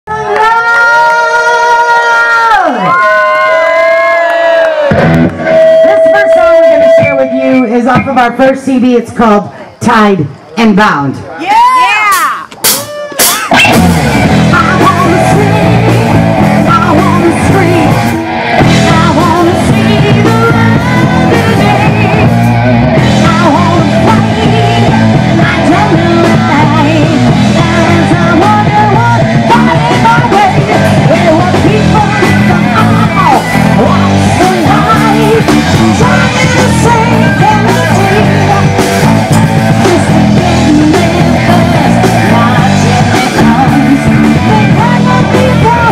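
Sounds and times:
electric guitar: 0.1 - 8.2, 12.6 - 45.9
drums: 4.7 - 9.2, 11.4 - 45.9
woman singing: 14.4 - 22.4, 23.0 - 45.9.

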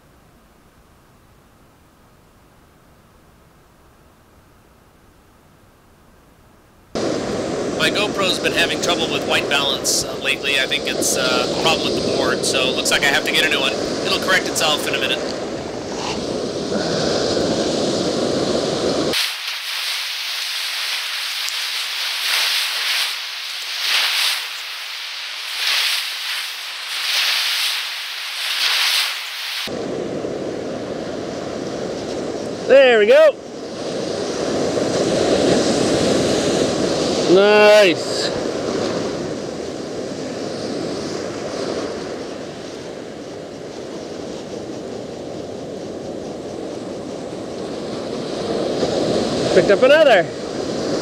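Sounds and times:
wind buffeting microphone: 7.0 - 19.2, 38.3 - 49.6
surf water hissing around feet: 7.0 - 29.8, 31.8 - 51.0.

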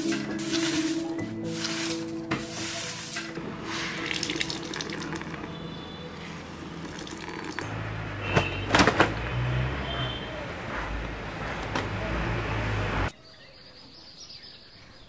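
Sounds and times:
water splashing and dripping: 3.1 - 5.6, 6.8 - 7.6.

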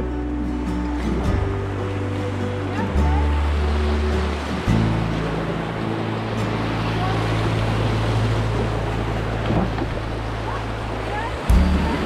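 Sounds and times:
low sustained music chord: 0.0 - 9.4
whitewater rushing: 0.0 - 12.0.

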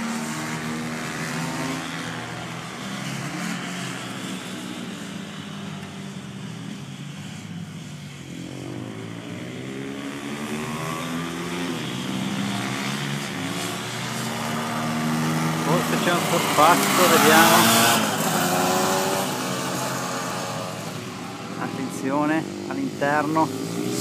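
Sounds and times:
racing motorcycle engines: 0.0 - 24.0.

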